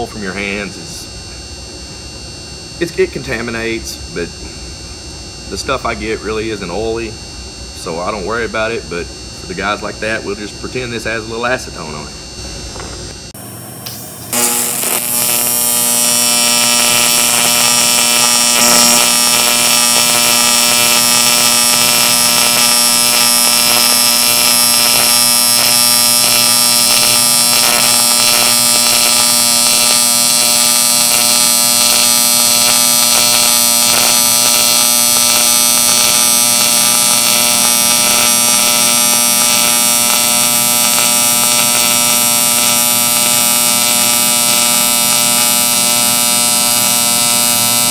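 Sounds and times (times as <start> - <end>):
welding arc buzz and hiss: 0.0 - 47.9.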